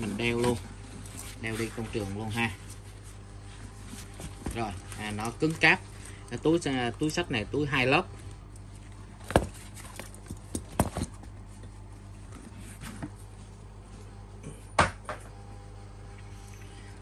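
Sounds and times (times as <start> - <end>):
faint low hum: 0.0 - 17.0
tool bag handling clicks and knocks: 9.2 - 11.4.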